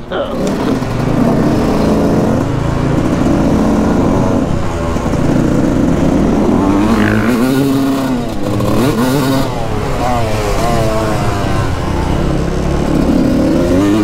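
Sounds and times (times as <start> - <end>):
two-stroke engine revving: 0.0 - 14.0.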